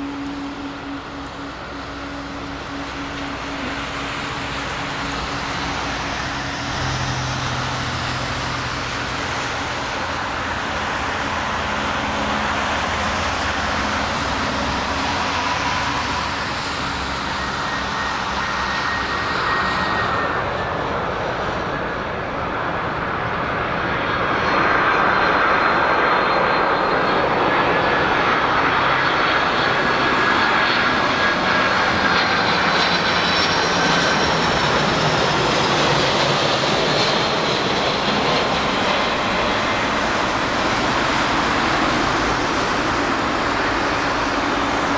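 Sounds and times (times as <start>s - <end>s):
jet airliner engines rumbling: 0.0s - 44.9s.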